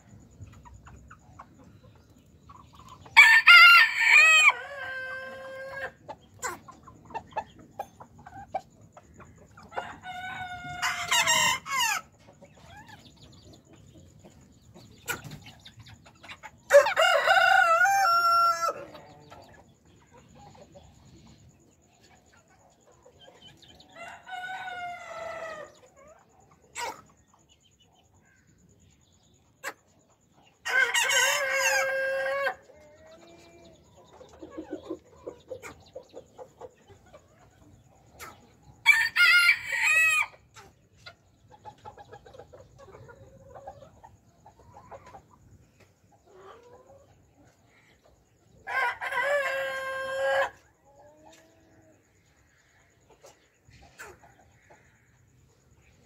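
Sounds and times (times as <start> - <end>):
hens clucking: 0.0 - 27.5, 29.4 - 56.0
roosters crowing: 3.1 - 6.6, 9.7 - 12.1, 16.7 - 19.6, 23.9 - 25.8, 30.6 - 33.8, 38.8 - 40.5, 48.6 - 50.8.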